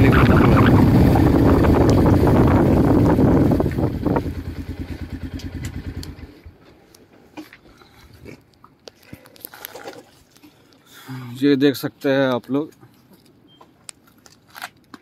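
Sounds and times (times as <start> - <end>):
wind rushing on microphone: 0.0 - 4.5
motorcycle engine running: 0.0 - 6.6.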